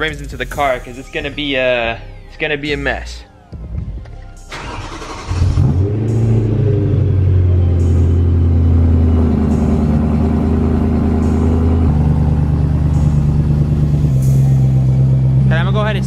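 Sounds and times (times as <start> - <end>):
car engine cold start and idle: 3.6 - 16.0.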